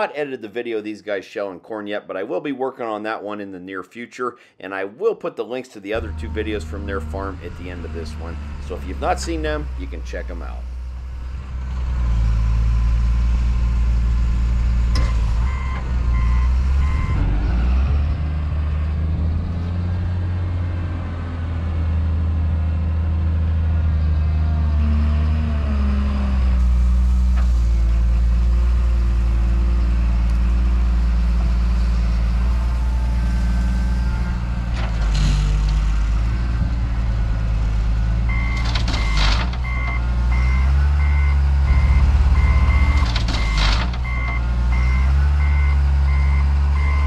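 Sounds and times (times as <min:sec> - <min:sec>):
wheel loader engine: 0:05.9 - 0:47.0
reversing beeps: 0:15.0 - 0:17.3, 0:38.3 - 0:47.0.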